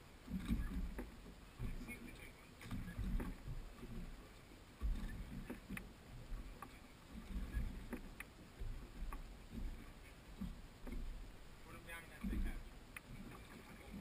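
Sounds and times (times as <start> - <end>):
waves lapping against boat hull: 0.0 - 14.0
light clicks and knocks: 0.2 - 4.2, 4.8 - 11.3.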